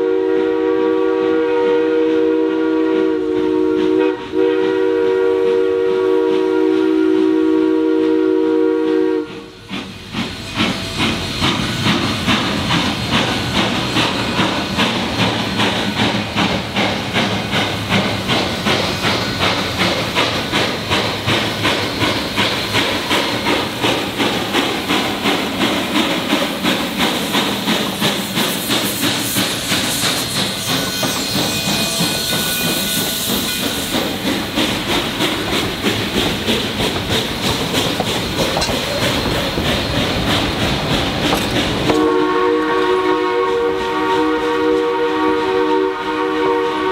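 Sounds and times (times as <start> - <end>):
steam whistle blast: 0.0 - 9.6, 41.9 - 46.9
hissing steam: 0.0 - 46.9
steam locomotive exhaust chuffs: 0.0 - 46.9
faint wheel squeal: 28.7 - 34.0.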